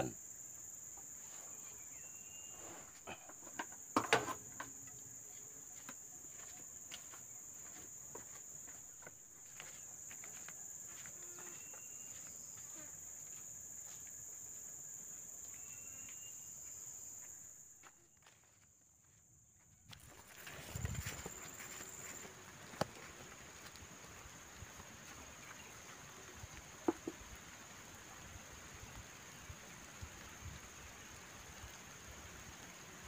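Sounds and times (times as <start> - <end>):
insects droning: 0.0 - 33.0
footsteps: 5.0 - 14.7, 15.3 - 24.2.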